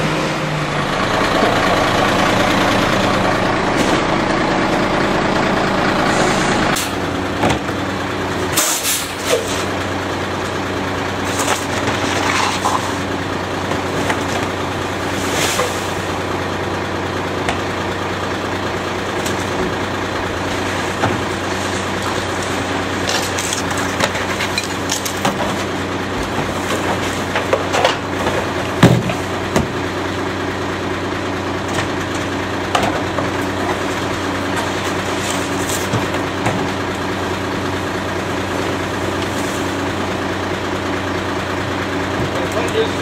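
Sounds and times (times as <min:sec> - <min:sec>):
garbage truck engine idling: 0:00.0 - 0:43.0
trash clattering into hopper: 0:11.1 - 0:16.3, 0:19.0 - 0:30.0, 0:31.6 - 0:40.4.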